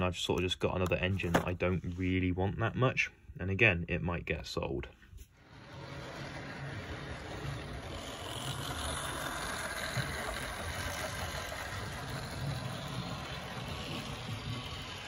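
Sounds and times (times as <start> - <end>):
model train rumbling on track: 5.4 - 15.0.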